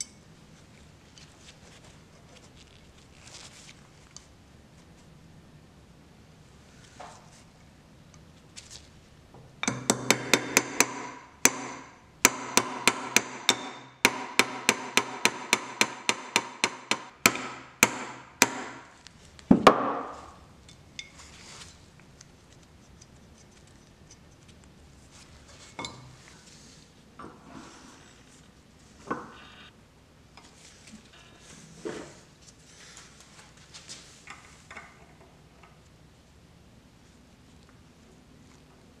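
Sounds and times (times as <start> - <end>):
hammer tapping metal: 9.6 - 18.9.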